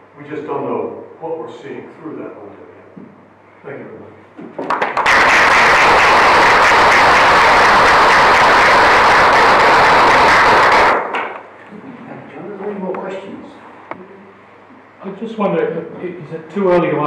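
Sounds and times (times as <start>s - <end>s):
audience applauding: 4.6s - 11.4s.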